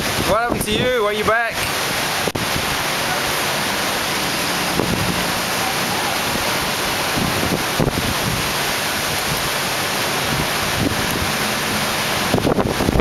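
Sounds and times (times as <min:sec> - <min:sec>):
wind buffeting microphone: 0:00.0 - 0:01.0, 0:01.6 - 0:13.0
heavy rain pouring: 0:00.0 - 0:13.0.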